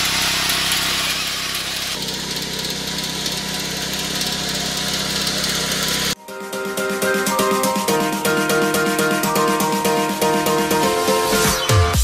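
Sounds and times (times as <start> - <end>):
power reaper engine running: 0.0 - 6.2.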